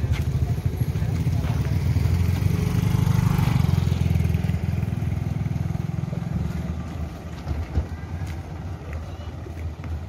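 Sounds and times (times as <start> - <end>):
small motorcycle passing by: 0.2 - 7.4.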